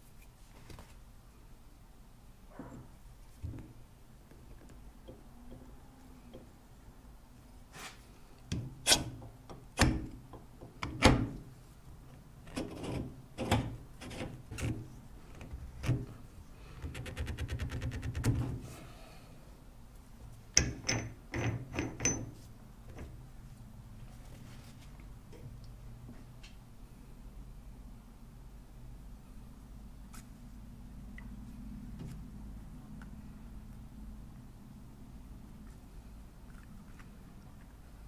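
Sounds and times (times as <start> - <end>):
metal parts knocking and clicking: 20.6 - 23.1.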